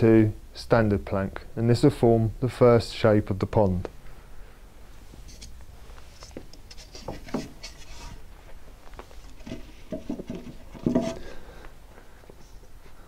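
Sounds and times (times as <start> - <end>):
wooden planks knocking and scraping: 6.4 - 8.2, 9.3 - 11.3.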